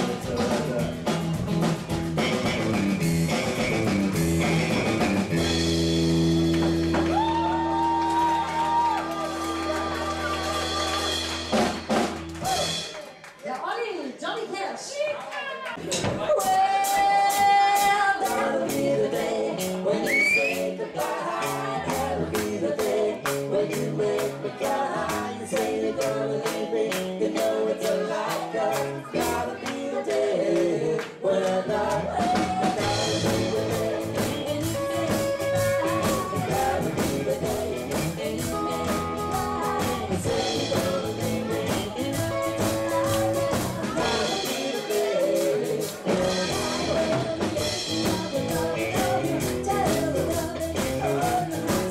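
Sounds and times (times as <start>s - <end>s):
electric guitar: 0.0s - 13.0s, 31.9s - 51.9s
steady drum beat: 0.0s - 13.2s, 15.8s - 30.1s, 31.8s - 51.9s
woman singing into microphone: 16.2s - 26.6s, 31.7s - 51.9s.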